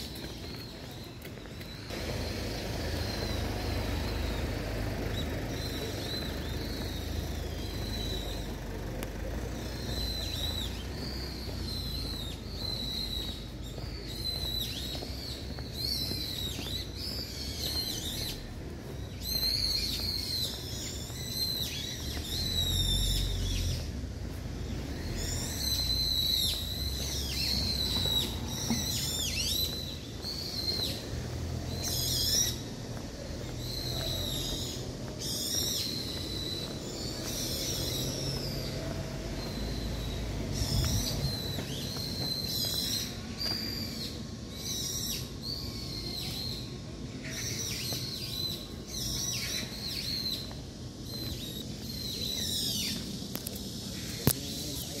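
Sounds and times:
songbirds chirping: 0.0s - 55.0s.

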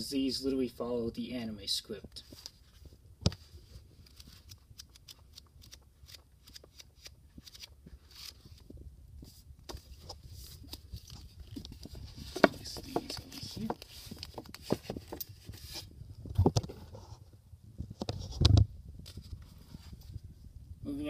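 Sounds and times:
book pages flipping: 2.2s - 17.2s.

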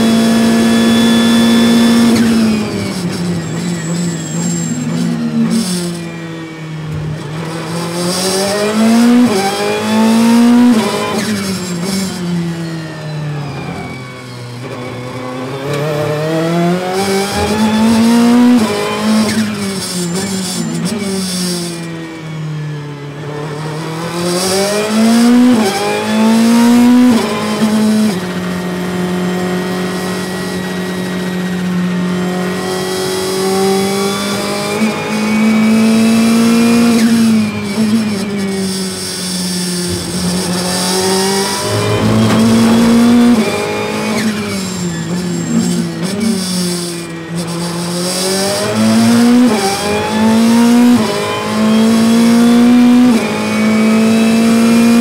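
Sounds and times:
race car engine revving: 37.6s - 46.5s.

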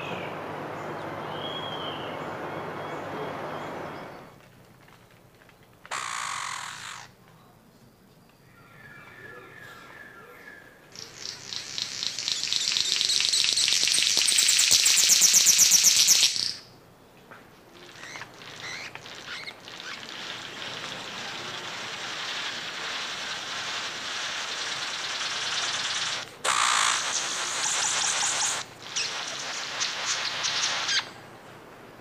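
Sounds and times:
quiet hissing: 0.0s - 8.4s, 10.8s - 32.0s
bird buzzing rattle call: 5.9s - 7.2s, 17.9s - 31.2s.

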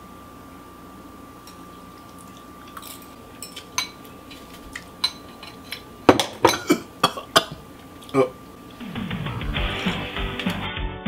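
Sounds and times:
fork clinking against glass bowl: 2.8s - 4.1s, 5.0s - 5.8s.

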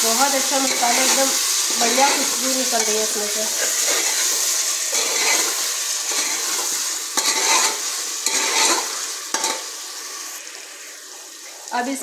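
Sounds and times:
potatoes sizzling in oil: 0.0s - 12.0s
spatula scraping pot: 1.9s - 9.6s.

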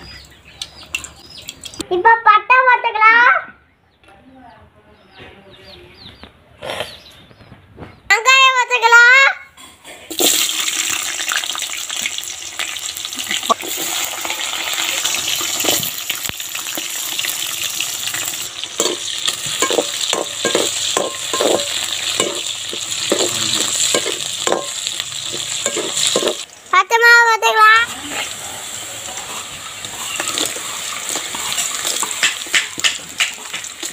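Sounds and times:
onions sizzling in hot oil: 10.1s - 33.9s
metal ladle scraping pan: 18.1s - 26.5s.

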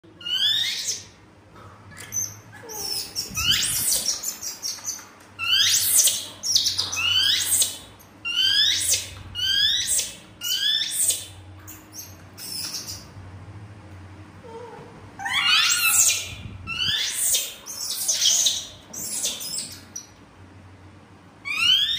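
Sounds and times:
baby monkey squealing: 0.2s - 1.1s, 2.1s - 13.1s, 15.2s - 20.0s, 21.4s - 21.9s.

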